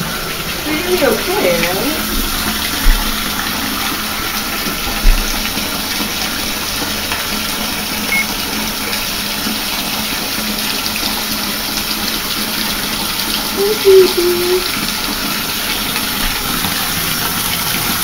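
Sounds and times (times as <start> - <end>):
bathtub tap running: 0.0 - 18.0
low thumps: 2.0 - 3.6.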